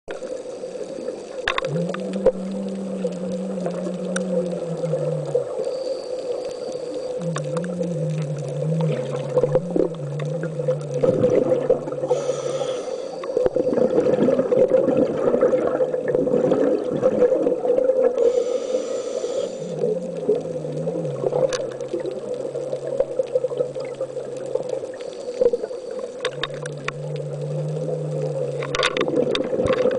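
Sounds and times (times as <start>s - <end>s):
steady hum: 1.6s - 14.0s.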